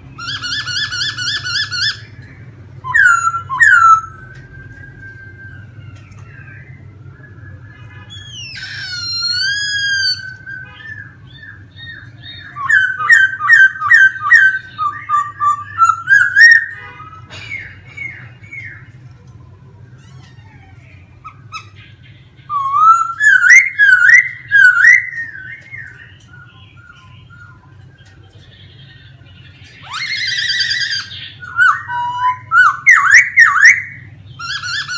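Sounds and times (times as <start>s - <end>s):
bird singing whistled notes: 0.2s - 18.9s, 22.4s - 27.8s, 28.7s - 34.9s.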